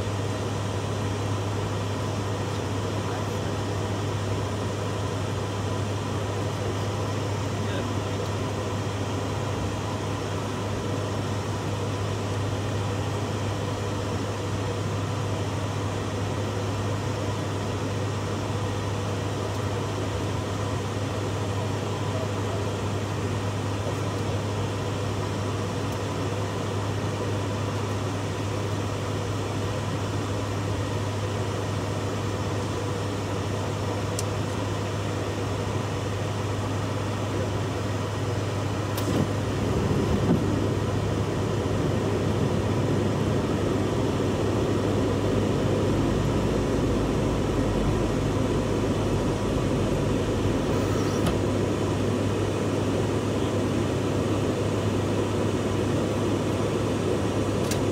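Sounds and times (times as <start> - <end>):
propeller engine drone: 0.0 - 57.9.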